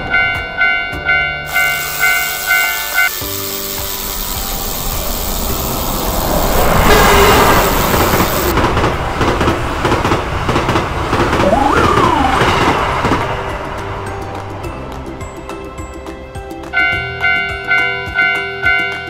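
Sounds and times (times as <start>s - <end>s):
train passing: 0.0s - 15.8s
rising and falling tone: 11.2s - 14.2s.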